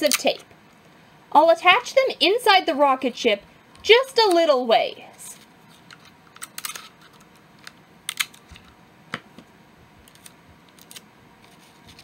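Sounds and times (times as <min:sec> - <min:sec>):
adhesive tape pulled and torn: 0:10.1 - 0:11.1.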